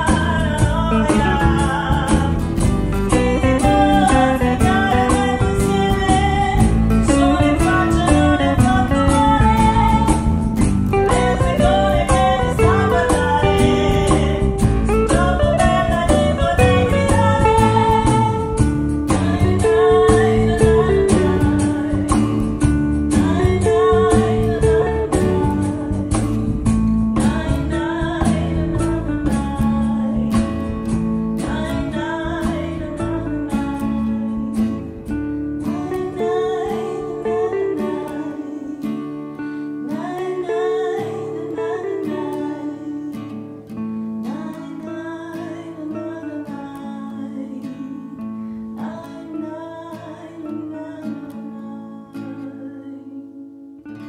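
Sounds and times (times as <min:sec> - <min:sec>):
cajon beats: 0:00.0 - 0:38.4
acoustic guitars strummed and picked: 0:00.0 - 0:54.0.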